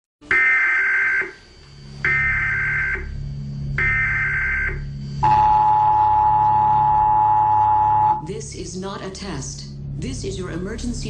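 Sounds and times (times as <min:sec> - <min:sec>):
low steady drone: 0:00.2 - 0:11.0
warbling data bursts: 0:02.0 - 0:09.2
two-tone attention signal: 0:03.8 - 0:08.3.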